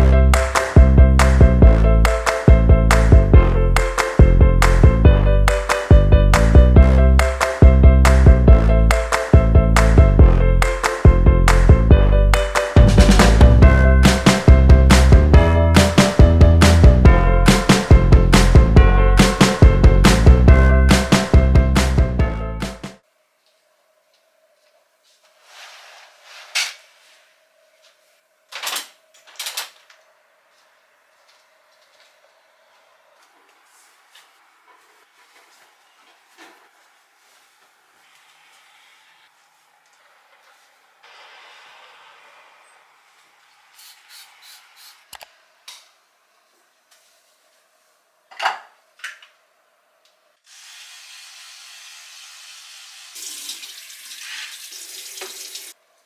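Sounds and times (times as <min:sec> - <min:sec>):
curtain fabric swishing: 0:25.0 - 0:28.2, 0:33.5 - 0:41.8
curtain runners sliding on rail: 0:25.3 - 0:27.4
running water: 0:50.5 - 0:55.8.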